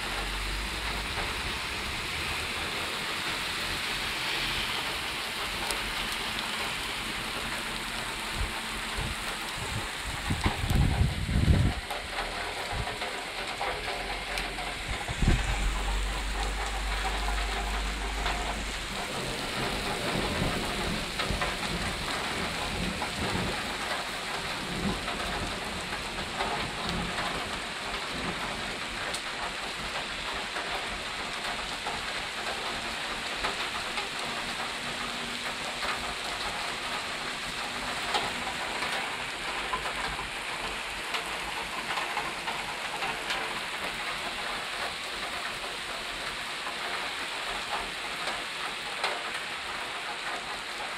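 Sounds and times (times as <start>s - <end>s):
drips and patters: 0.0s - 50.9s
steady rain falling: 0.0s - 50.9s
low rumble of thunder: 8.3s - 13.1s, 13.9s - 28.8s.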